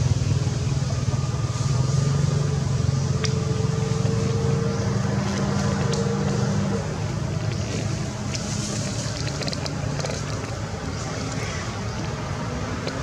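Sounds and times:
low engine-like hum: 0.0s - 13.0s.

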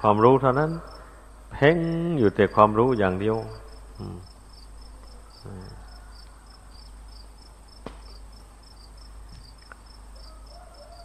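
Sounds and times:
insect chirping: 0.1s - 11.0s.

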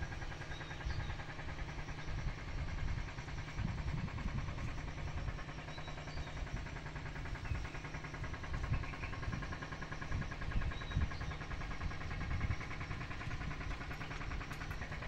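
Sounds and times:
faint mechanical hum: 0.0s - 15.0s
wind rumbling on microphone: 0.0s - 15.0s.

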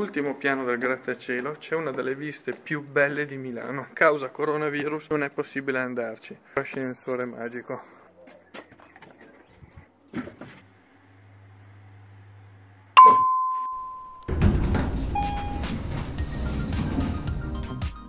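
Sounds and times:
elevator chime: 13.0s - 14.4s, 15.1s - 16.4s.

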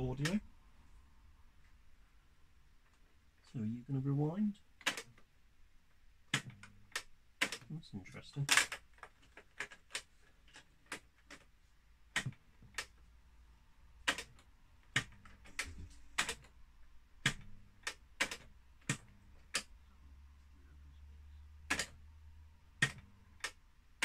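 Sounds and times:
faint low hum: 11.6s - 24.0s.

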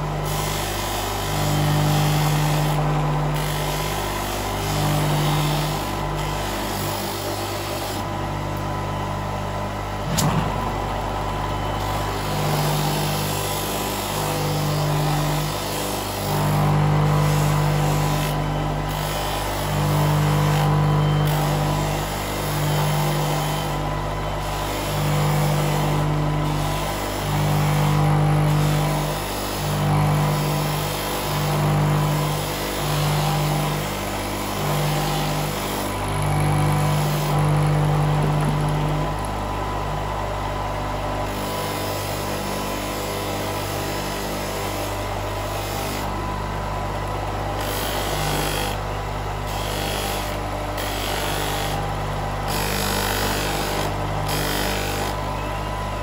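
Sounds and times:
polishing motor hum: 0.0s - 10.2s, 10.8s - 56.0s.

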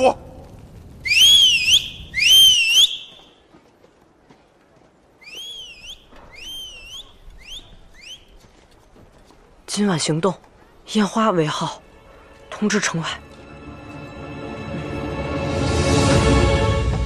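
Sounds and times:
man whistling swooping calls: 1.0s - 3.3s, 5.2s - 8.4s
faint answering whistles: 5.2s - 8.4s.

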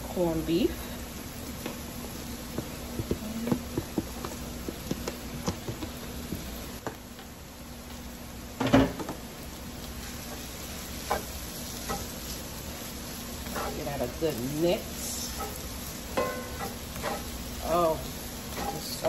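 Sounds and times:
potatoes frying in oil: 0.0s - 19.0s
spatula clacking against pan: 16.2s - 17.3s.

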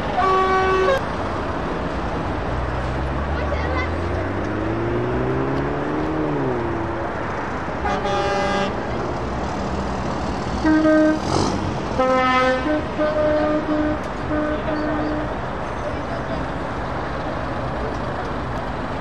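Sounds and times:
truck horn blasts: 0.0s - 1.0s, 7.8s - 8.9s, 10.6s - 15.4s
truck engines revving: 0.0s - 19.0s.

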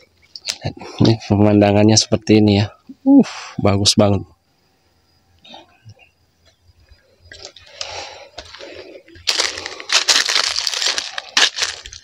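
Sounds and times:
footsteps crunching through dry grass: 7.3s - 12.0s.

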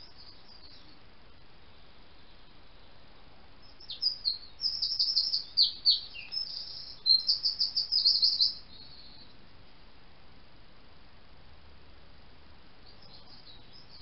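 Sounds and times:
blackbird calling: 3.6s - 9.4s, 12.8s - 14.0s.

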